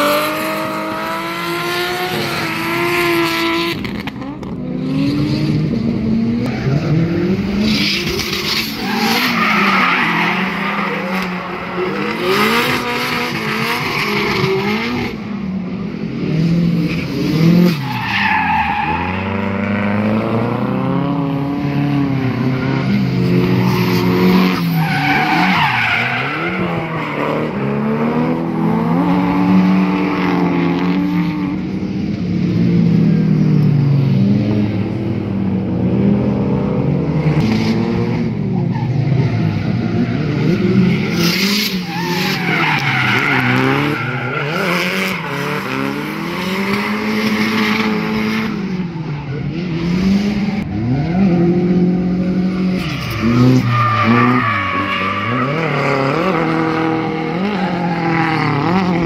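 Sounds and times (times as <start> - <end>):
car engines revving: 0.0 - 59.0
tyres squealing and skidding: 7.6 - 15.1, 16.8 - 19.7, 21.9 - 27.9, 38.6 - 48.3, 52.6 - 59.0.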